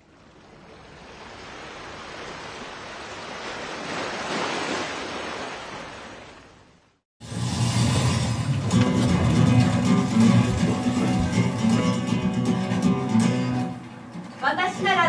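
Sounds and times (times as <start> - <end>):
sea surf washing on shore: 0.0 - 15.0
music: 7.2 - 15.0.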